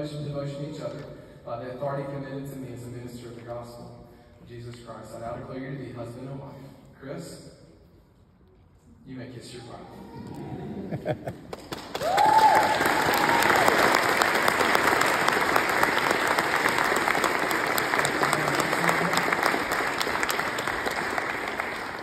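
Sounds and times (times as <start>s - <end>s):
crowd applauding: 11.3s - 22.0s
crowd cheering: 11.8s - 22.0s
rising whoop: 12.0s - 13.9s.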